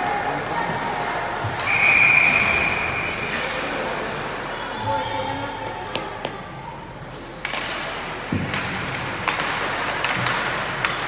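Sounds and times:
skates scraping ice: 0:00.0 - 0:05.0, 0:07.4 - 0:11.0
hockey sticks clacking on puck: 0:07.1 - 0:11.0.

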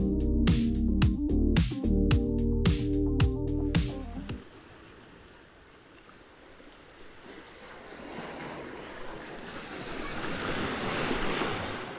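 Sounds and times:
waves washing onto beach: 0:04.4 - 0:11.9.

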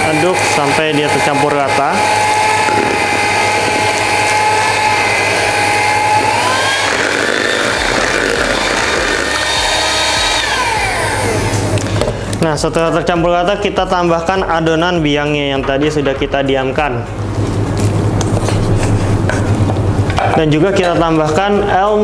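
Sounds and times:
electric hand mixer whine: 0:00.0 - 0:12.4.

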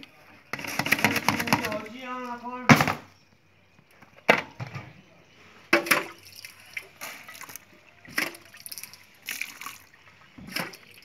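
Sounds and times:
wet sloshing of juice: 0:05.9 - 0:11.0.

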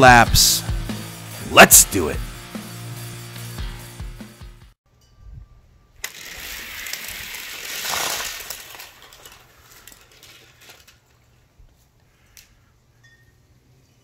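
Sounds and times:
toy cars rattling down plastic track: 0:06.0 - 0:11.2.

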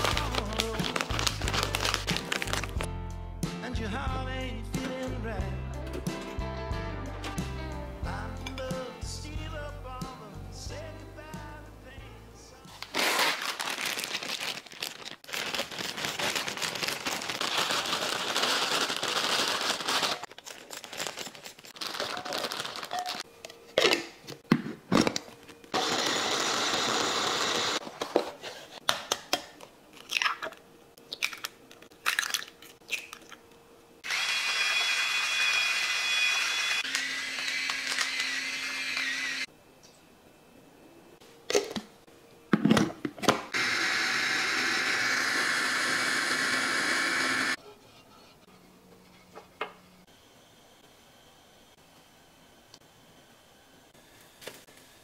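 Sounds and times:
pepper mill grinding: 0:13.0 - 0:23.2, 0:34.1 - 0:39.4
electric food chopper running: 0:25.8 - 0:27.8, 0:34.0 - 0:39.5, 0:43.6 - 0:47.6.

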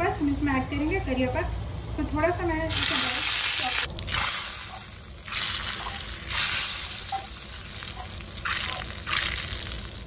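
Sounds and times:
hot oil sizzling: 0:02.7 - 0:10.0.

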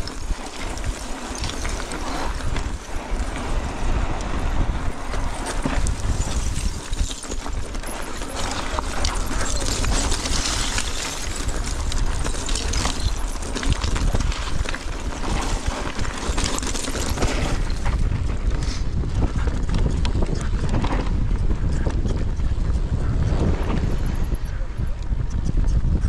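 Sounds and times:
tyres crunching over stones: 0:00.0 - 0:21.0
bike clattering and rattling: 0:00.0 - 0:25.5
wind rumble on microphone: 0:00.0 - 0:26.0.

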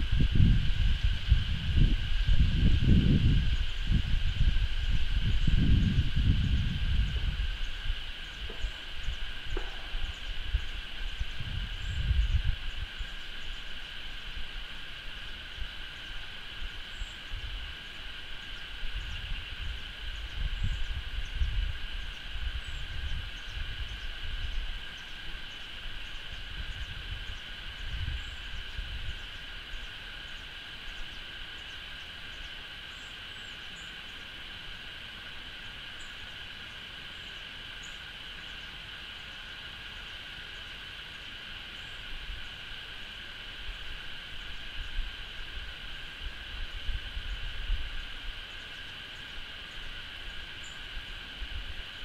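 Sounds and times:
wind buffeting microphone: 0:00.0 - 0:13.6, 0:18.8 - 0:24.8, 0:26.2 - 0:29.3
high-pitched insect drone: 0:00.0 - 0:52.0.

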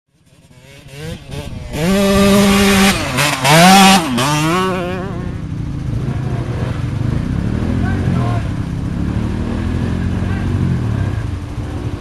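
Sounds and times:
atv engine revving: 0:00.1 - 0:12.0.

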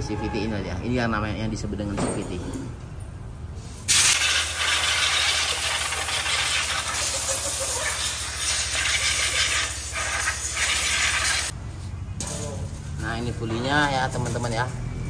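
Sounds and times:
compressed air blow gun hissing: 0:03.9 - 0:11.6.

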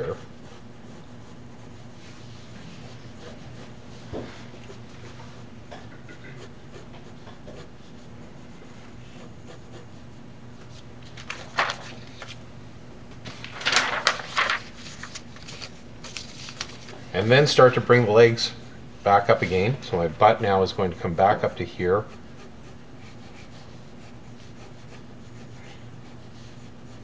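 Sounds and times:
pencil sketching on paper: 0:00.0 - 0:05.5, 0:06.4 - 0:10.3, 0:22.0 - 0:27.0
steady low hum: 0:00.0 - 0:27.0
paper rustling: 0:10.7 - 0:12.4, 0:13.2 - 0:17.8.

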